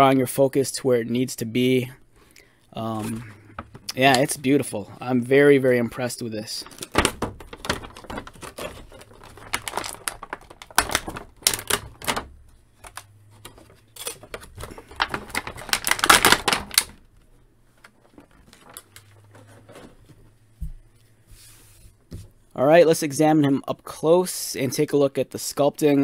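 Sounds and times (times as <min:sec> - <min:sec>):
plastic blister tray crackling: 0:06.0 - 0:20.1.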